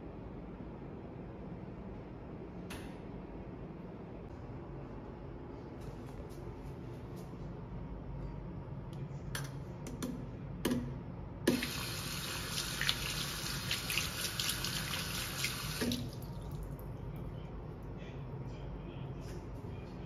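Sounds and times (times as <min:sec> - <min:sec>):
tap water running into basin: 0:11.5 - 0:16.9.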